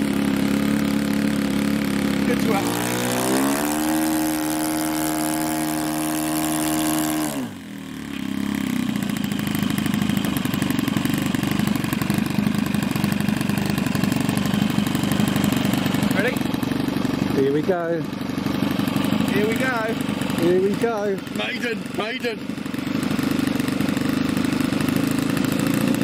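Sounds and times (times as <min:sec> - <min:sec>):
model aircraft engine: 0:00.0 - 0:26.0.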